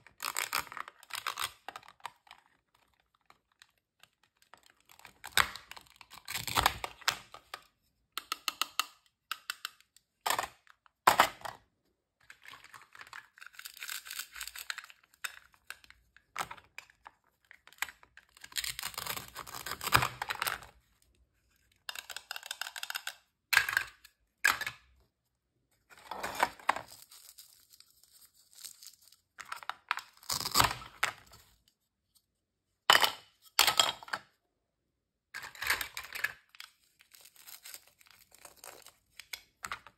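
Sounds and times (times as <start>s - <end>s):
velcro tearing apart: 30.2s - 30.9s.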